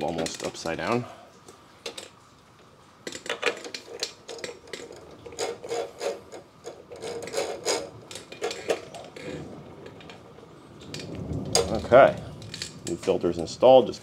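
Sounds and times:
oil filter scraping on mount: 3.5s - 11.2s.

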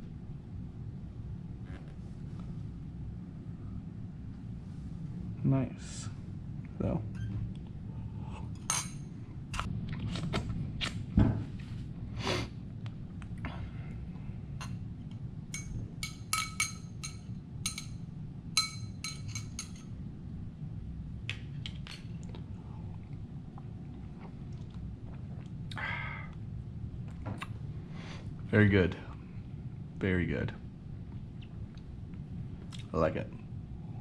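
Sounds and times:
metal stirrer clinking in glass: 15.6s - 18.0s, 18.6s - 19.9s.

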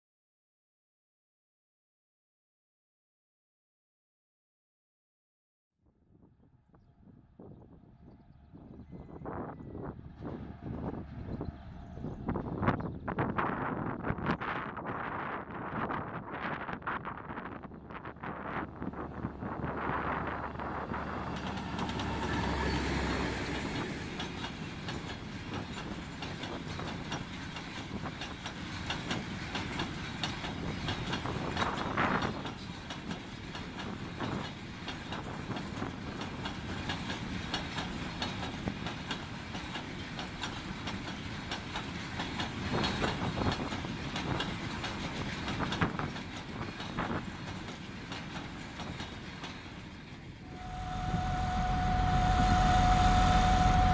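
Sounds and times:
diesel locomotive engines: 6.7s - 53.9s
train wheels clattering on rail joints: 18.9s - 50.5s.

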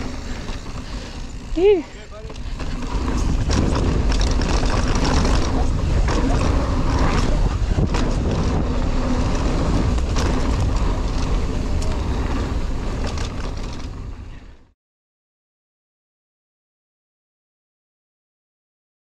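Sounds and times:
bike clicks and rattles: 0.0s - 14.6s
wind buffeting microphone: 0.0s - 14.6s
bike tyres rolling on dirt: 0.0s - 14.7s.

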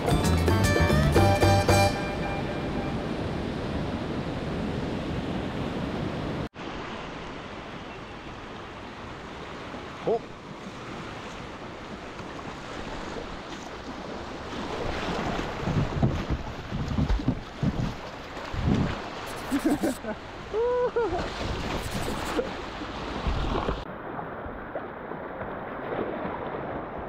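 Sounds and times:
wind buffeting microphone: 14.7s - 19.1s.

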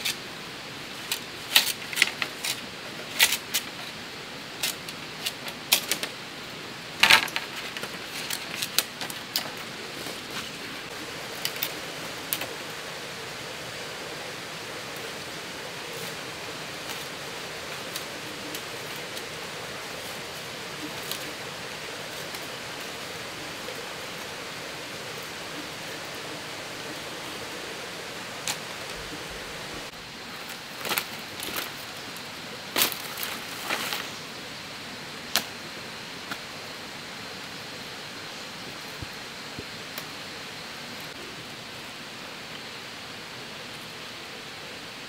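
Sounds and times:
bamboo strips cracking and clattering: 1.0s - 6.2s, 7.0s - 10.7s, 16.0s - 21.4s, 30.4s - 32.0s, 32.7s - 34.2s, 35.3s - 35.5s.

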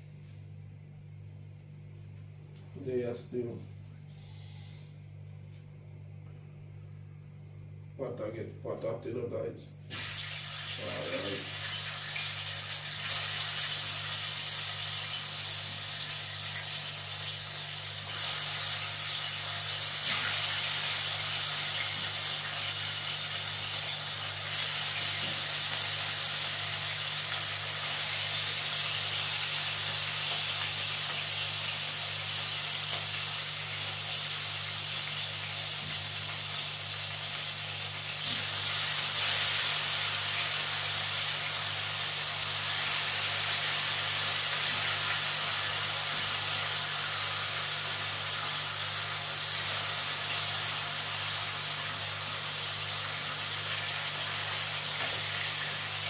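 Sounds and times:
steady low hum: 0.0s - 10.0s
chicken frying in hot oil: 9.9s - 56.0s.

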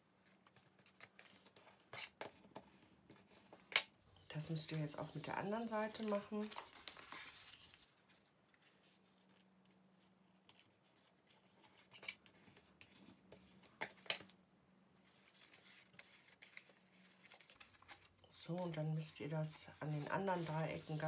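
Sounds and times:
paper folding rustles and taps: 4.6s - 14.4s, 15.1s - 18.8s.

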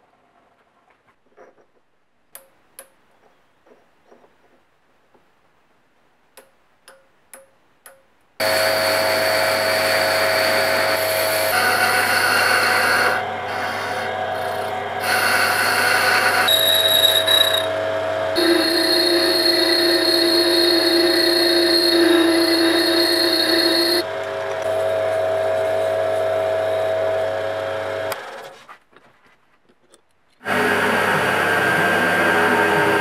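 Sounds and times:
metal lathe whine: 8.4s - 28.2s, 30.5s - 33.0s.

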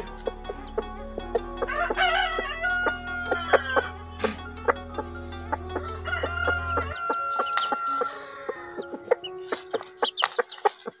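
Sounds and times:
chickens clucking: 0.0s - 11.0s
rooster crowing: 1.7s - 3.9s, 5.8s - 8.8s.

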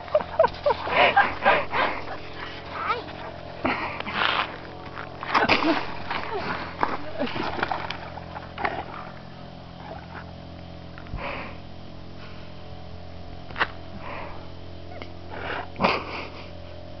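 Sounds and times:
dog huffing and sniffing: 0.5s - 5.0s.

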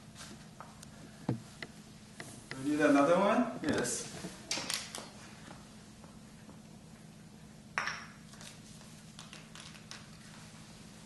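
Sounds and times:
low steady hum: 0.0s - 11.0s
sharp clink with ringing ping: 7.8s - 8.2s.

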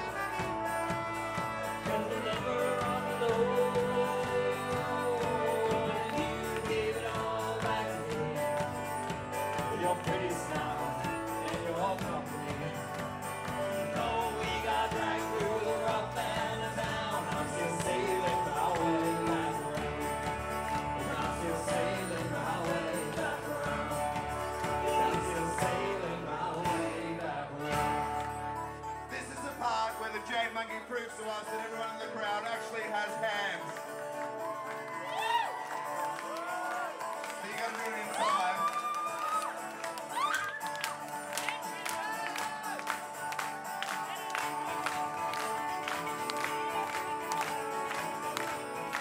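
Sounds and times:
trumpet melody: 0.0s - 26.4s
drums: 0.0s - 29.6s
guitar accompaniment: 0.0s - 49.0s
man singing: 1.0s - 33.8s.

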